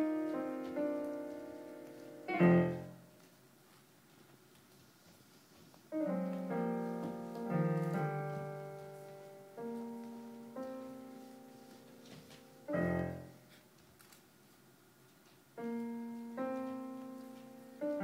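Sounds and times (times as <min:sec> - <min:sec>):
solo piano music: 0:00.0 - 0:03.1, 0:05.9 - 0:13.5, 0:15.6 - 0:18.0.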